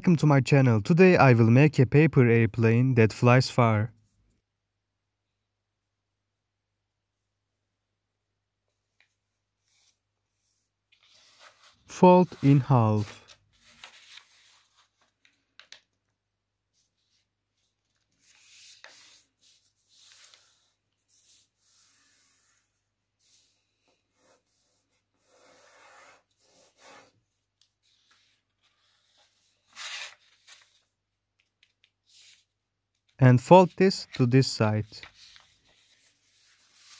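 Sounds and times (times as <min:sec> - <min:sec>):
paper rustling and creasing: 0:08.9 - 0:16.1, 0:16.7 - 0:23.5, 0:27.7 - 0:36.9.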